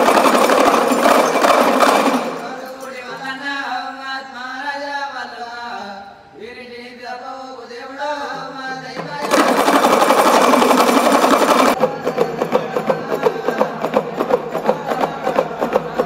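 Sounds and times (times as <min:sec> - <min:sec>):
background music with quick beat: 0:00.0 - 0:02.8, 0:09.0 - 0:16.0
loud fast rattle: 0:00.0 - 0:03.3, 0:09.0 - 0:16.0
man's voice: 0:02.0 - 0:09.9.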